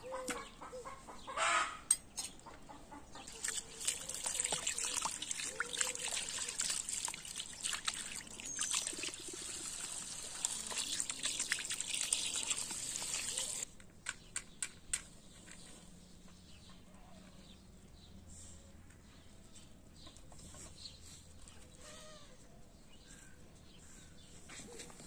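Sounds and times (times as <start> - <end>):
water from hose splashing into pot: 3.3 - 13.6.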